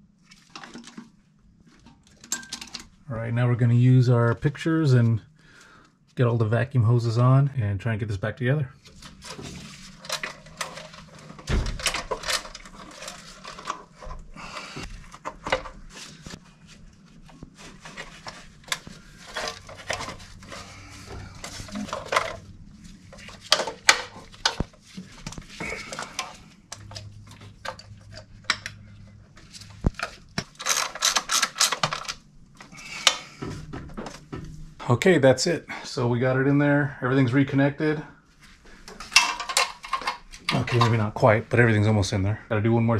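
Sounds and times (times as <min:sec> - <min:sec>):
metal tools and parts clinking: 0:02.0 - 0:02.9, 0:09.2 - 0:14.1, 0:30.0 - 0:32.2, 0:39.0 - 0:41.0.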